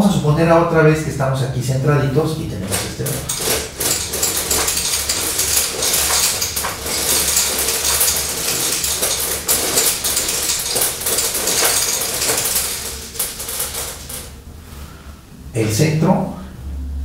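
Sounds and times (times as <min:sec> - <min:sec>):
beads clattering against pins: 0:02.6 - 0:14.4.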